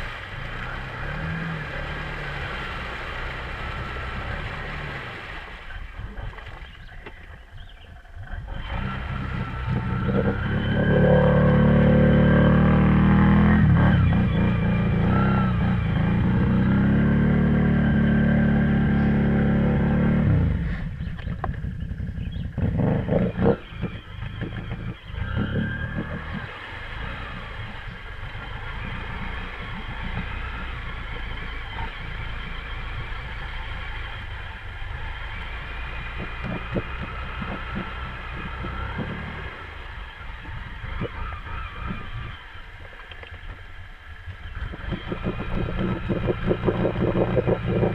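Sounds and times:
water splashing and sloshing: 0:00.0 - 0:12.9, 0:23.5 - 0:47.9
atv engine revving: 0:00.0 - 0:47.9.

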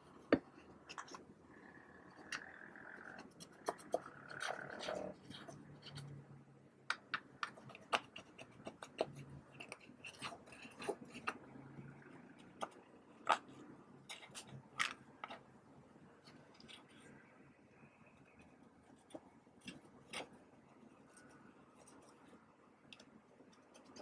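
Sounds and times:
plastic spatula scraping eyeshadow: 0:00.0 - 0:06.2, 0:07.4 - 0:11.5.

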